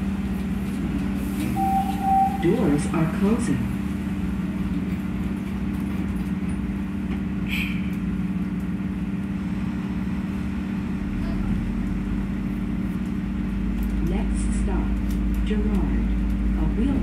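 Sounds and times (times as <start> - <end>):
subway car humming: 0.0 - 17.0
high-pitched chirp: 1.6 - 3.2.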